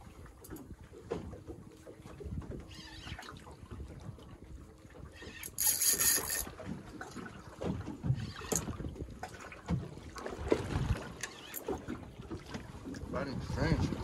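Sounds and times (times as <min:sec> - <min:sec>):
water slapping boat hull: 0:00.0 - 0:14.0
fishing reel thuds and clicks: 0:05.3 - 0:06.5
wind on microphone: 0:13.0 - 0:14.0.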